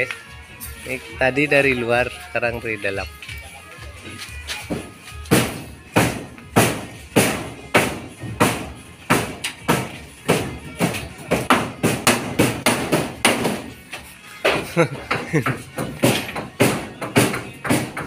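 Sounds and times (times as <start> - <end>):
hammer blows ringing: 4.7 - 13.8.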